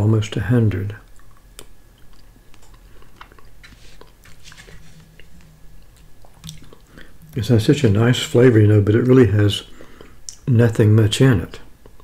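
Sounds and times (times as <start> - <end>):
quiet eating sounds: 0.2 - 10.5, 11.5 - 12.0
wet mouth clicks: 1.1 - 4.3, 5.2 - 7.4, 10.2 - 10.4.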